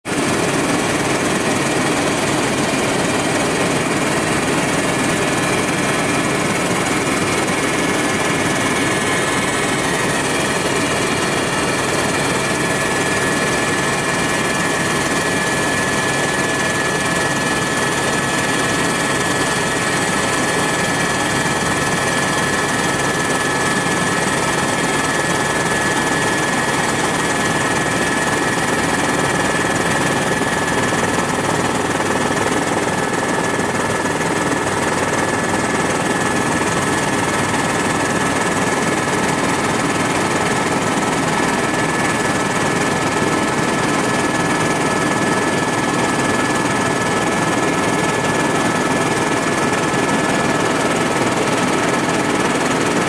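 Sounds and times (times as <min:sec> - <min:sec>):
helicopter engine and rotor drone: 0:00.0 - 0:53.0.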